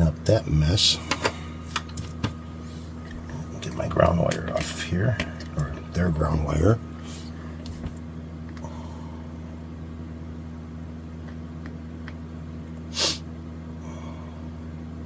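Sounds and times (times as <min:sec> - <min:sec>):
steady low hum: 0:00.0 - 0:15.0
short loud puff of noise: 0:12.9 - 0:13.3.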